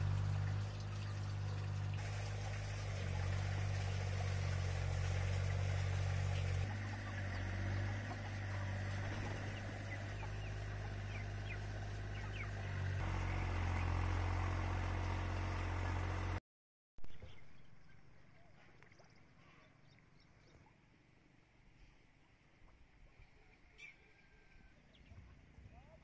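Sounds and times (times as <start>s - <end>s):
tractor engine hum: 0.0s - 16.4s
chickens chirping: 6.3s - 13.6s.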